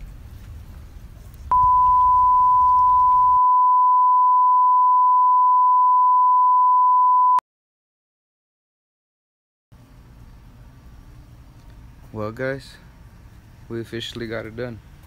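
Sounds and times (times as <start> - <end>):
steady pure test tone beep: 1.5 - 7.4.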